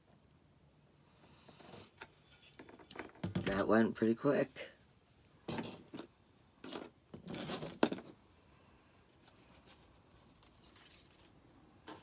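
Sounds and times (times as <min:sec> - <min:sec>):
paper rustling: 0:09.2 - 0:11.4.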